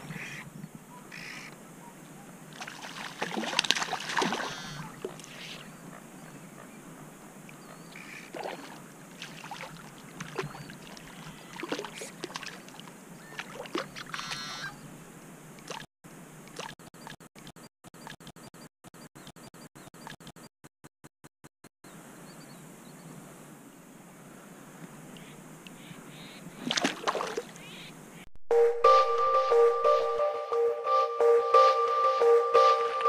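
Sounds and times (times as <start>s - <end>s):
fish splashing at water surface: 2.5s - 5.5s, 8.0s - 14.4s, 26.6s - 27.6s.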